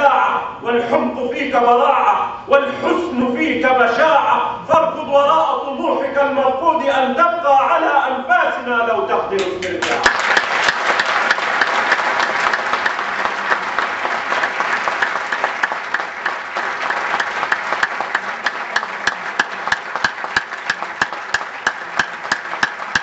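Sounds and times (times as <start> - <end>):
audience applauding: 9.8 - 23.0.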